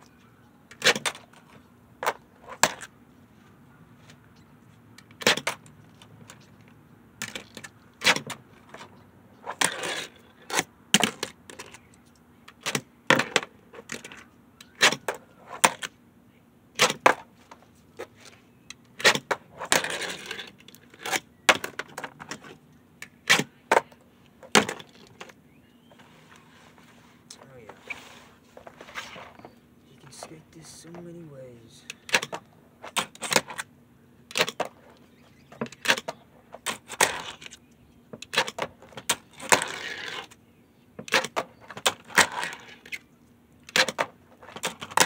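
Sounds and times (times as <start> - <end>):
fingerboard scraping slides: 26.0 - 29.5.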